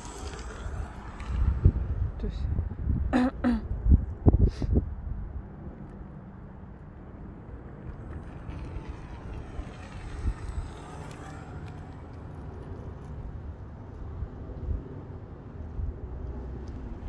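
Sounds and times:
electric motor whining: 0.0 - 2.0, 8.4 - 12.9.

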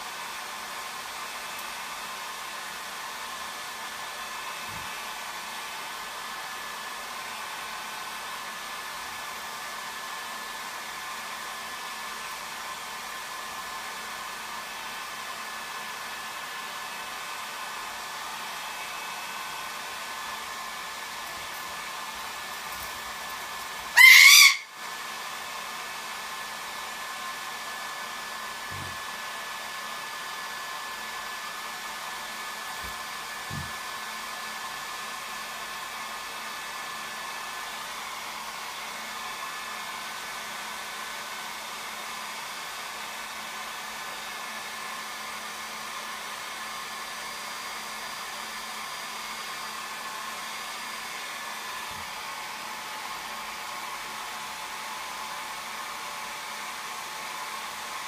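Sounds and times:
hair dryer blowing: 0.0 - 58.0
parrot squawk: 23.9 - 24.8.

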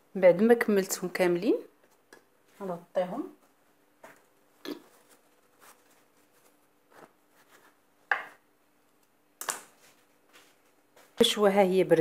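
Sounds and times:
cloth towel rustling: 3.5 - 8.0.

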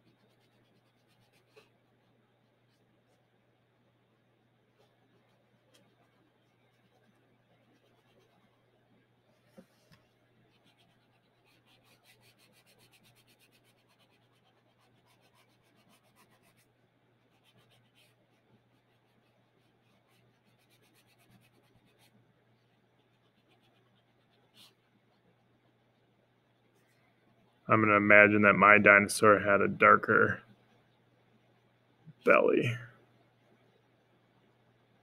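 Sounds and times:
crayon scratching on paper: 0.0 - 1.8, 4.8 - 8.7, 9.6 - 24.8
low steady hum: 0.0 - 35.0.

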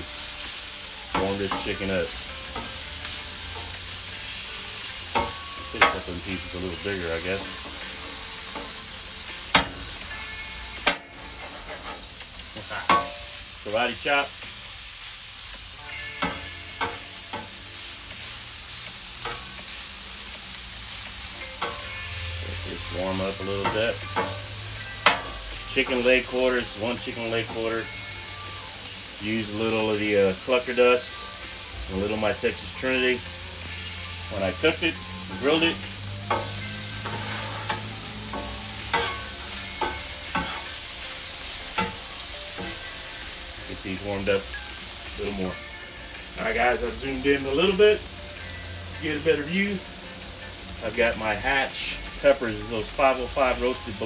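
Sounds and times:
chicken sizzling on griddle: 0.0 - 54.0
metal spatula clanking on griddle: 1.1 - 1.9, 5.1 - 6.1, 9.5 - 13.3, 15.8 - 17.6, 19.2 - 19.6, 21.6 - 22.2, 23.5 - 26.0, 36.2 - 40.8, 41.4 - 42.9
metal spatula clinking on griddle: 12.7 - 13.3, 16.0 - 17.5, 21.6 - 22.1, 23.6 - 24.4, 36.3 - 40.7, 41.8 - 42.0.

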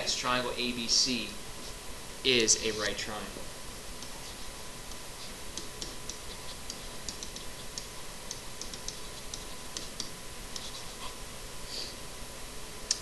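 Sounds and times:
steady hiss: 0.0 - 13.0
stylus tapping on a screen: 4.9 - 10.8.

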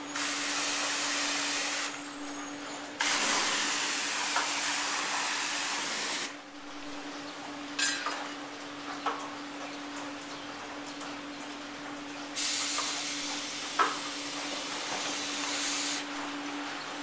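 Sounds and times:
water jets spraying car: 0.0 - 2.1, 3.0 - 6.4, 12.4 - 16.1.

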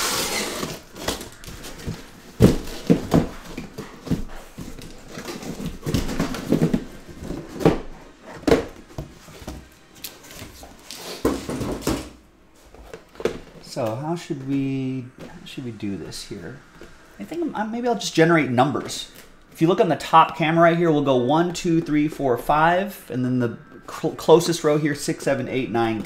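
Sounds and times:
plastic wrap squeaking: 0.0 - 3.2
boxes knocking and scraping: 0.0 - 9.7, 11.2 - 12.1.

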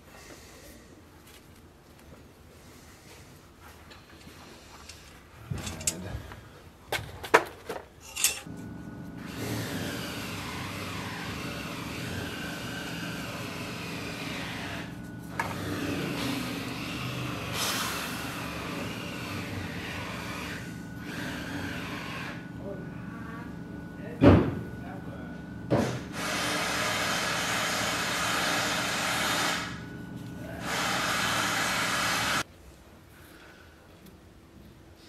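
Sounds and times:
mechanical drone with whine: 8.5 - 32.4.

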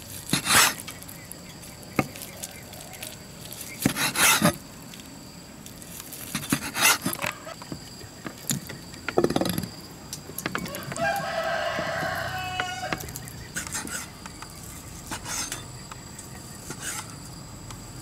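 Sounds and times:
knife on wooden chopping block: 3.8 - 4.6
rooster crowing: 10.6 - 13.2.

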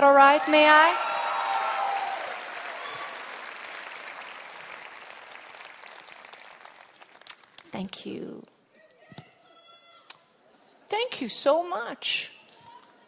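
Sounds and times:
concert audience applauding: 0.2 - 7.7.

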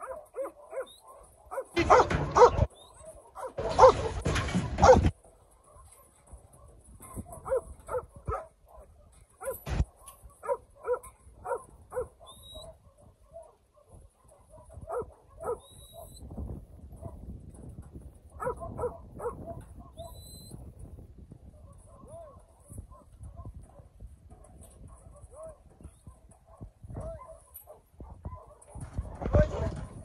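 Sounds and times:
dog barking: 0.0 - 5.1, 6.6 - 16.1, 18.3 - 20.1, 21.6 - 23.9, 24.9 - 29.8.

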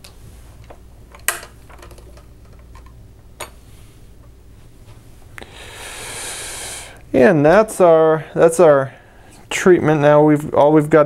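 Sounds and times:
tubing rustling hiss: 5.4 - 7.2.

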